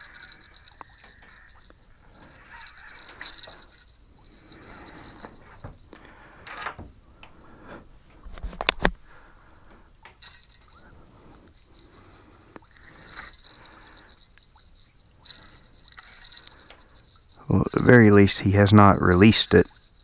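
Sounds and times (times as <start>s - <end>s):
fishing reel clicking: 0.0s - 5.4s, 10.2s - 10.9s, 11.5s - 20.0s
crickets chirping: 0.0s - 20.0s.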